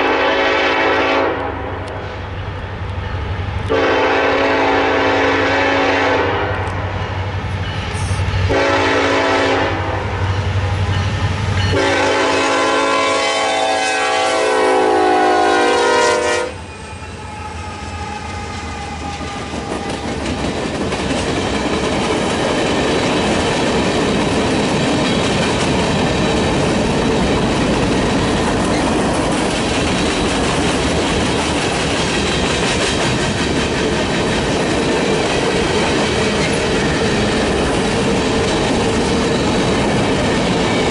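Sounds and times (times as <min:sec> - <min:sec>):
locomotive air horn blasts: 0:00.0 - 0:02.0, 0:03.7 - 0:06.7, 0:08.0 - 0:10.2, 0:11.7 - 0:20.0
train rumble and wheel clatter: 0:00.0 - 0:40.9.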